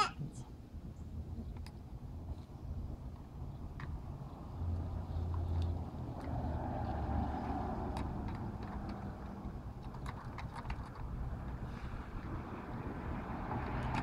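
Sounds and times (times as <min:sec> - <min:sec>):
toy trucks clicking in sand: 0:07.4 - 0:12.4.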